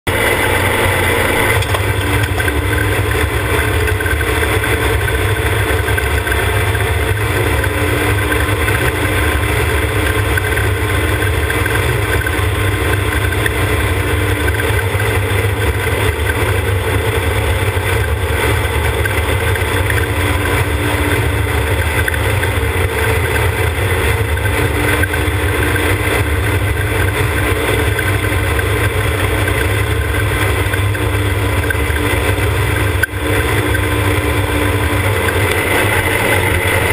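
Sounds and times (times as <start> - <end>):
engine droning at cruise: 0.0 - 36.9.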